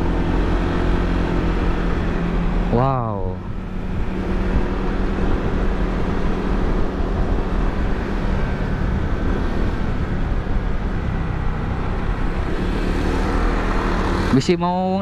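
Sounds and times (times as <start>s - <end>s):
wind noise on microphone: 3.5s - 13.1s.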